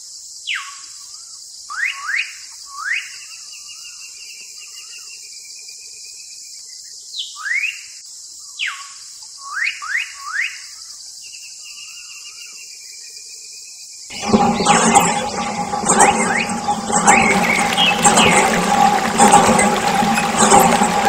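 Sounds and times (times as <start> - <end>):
birds chirping and whistling: 14.1 - 21.0.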